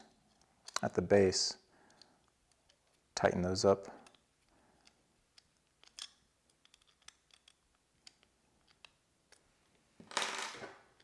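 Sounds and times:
small screw clicks: 0.2 - 0.9, 4.0 - 9.4.

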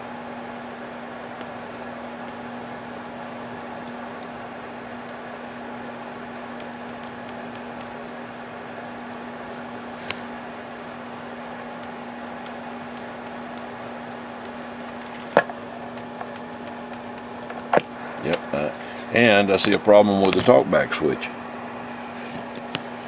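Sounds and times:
radio speaker hiss and hum: 17.4 - 22.8.

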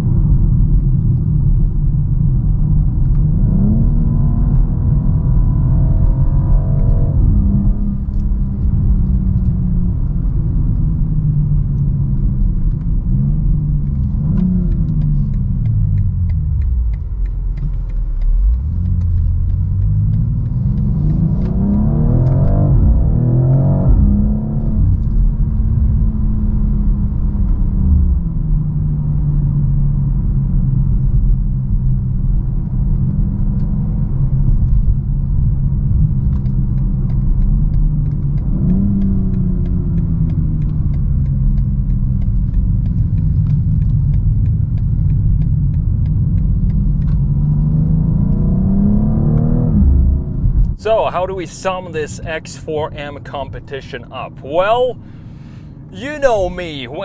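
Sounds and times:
car engine revving in cabin: 0.0 - 57.0.

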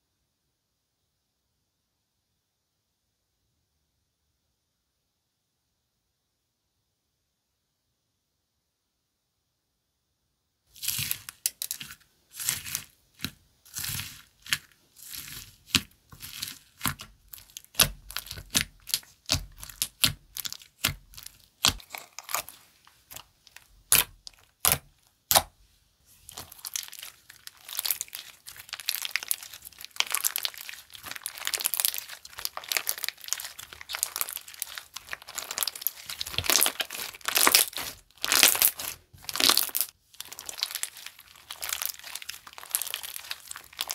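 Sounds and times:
slime squished crackling pops: 26.3 - 43.9.

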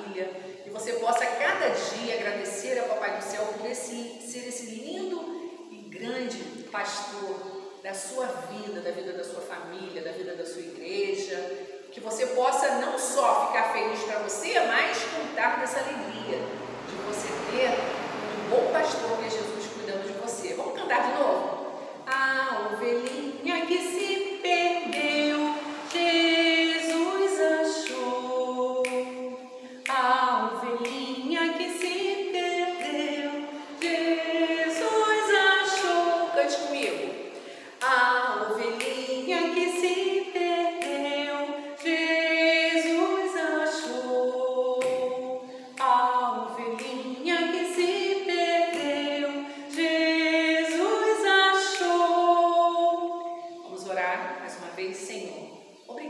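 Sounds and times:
woman singing unaccompanied: 0.0 - 56.0.

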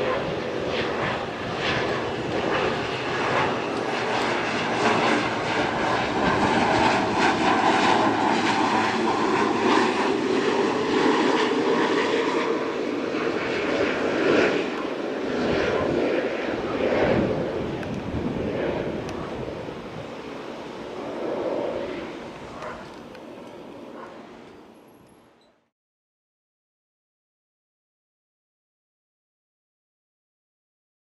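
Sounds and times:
turboprop airplane passing overhead: 0.0 - 25.5.

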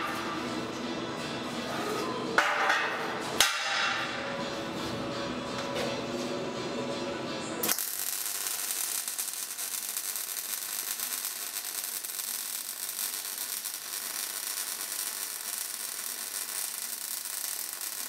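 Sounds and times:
welder arc crackling: 7.6 - 18.0.

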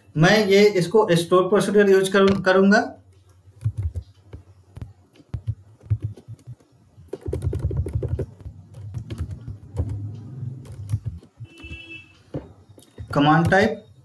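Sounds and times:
typing on a keyboard: 3.2 - 11.9.

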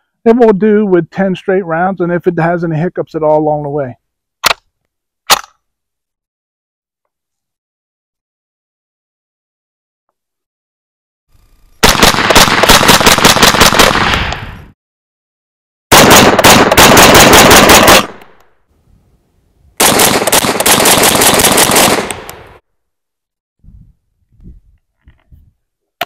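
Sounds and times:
rapid gunshots: 11.8 - 14.3, 15.9 - 18.2, 19.8 - 22.6.

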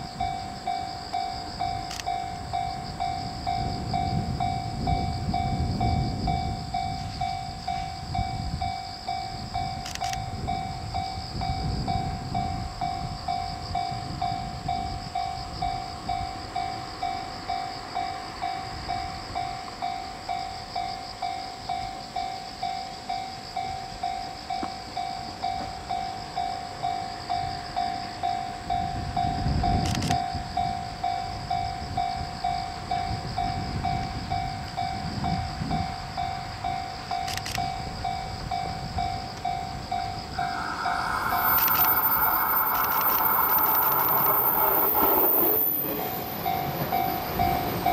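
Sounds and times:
electric train rumble: 0.0 - 47.9
level crossing warning bell ringing: 30.4 - 47.9.

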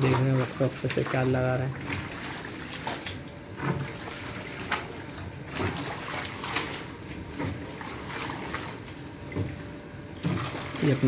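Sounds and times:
dye liquor sloshing in steel vat: 0.0 - 11.0.

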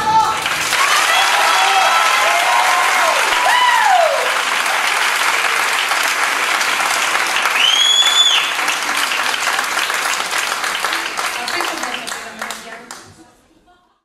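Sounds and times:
audience cheering: 0.0 - 11.9
audience applauding: 0.0 - 13.1
long high whistle: 7.6 - 8.6.

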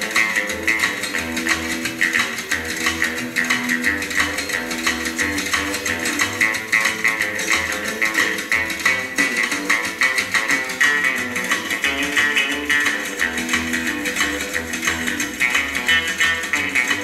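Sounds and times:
rock and roll instrumental: 0.0 - 17.0.

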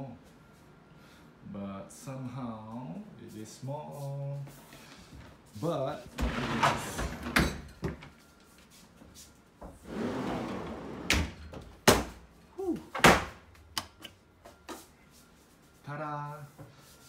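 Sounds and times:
cabinet doors rubbing and sliding: 6.2 - 7.5, 9.8 - 11.4.

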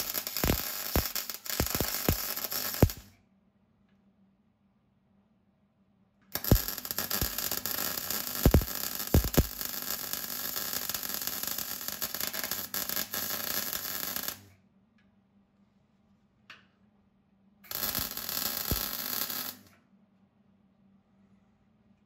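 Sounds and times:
welder sharp pops: 0.0 - 3.0, 6.4 - 9.6
welder arc crackling: 0.0 - 3.1, 6.4 - 14.5, 17.7 - 19.7.

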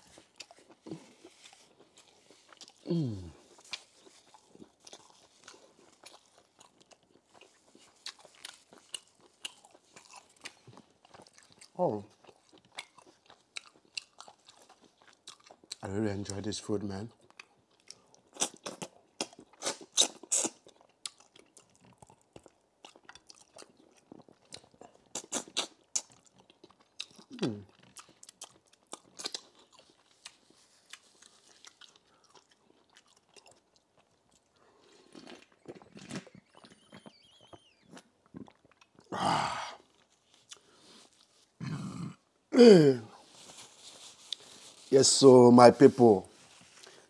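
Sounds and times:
person chewing crunchy food: 0.0 - 15.8, 17.2 - 42.3.

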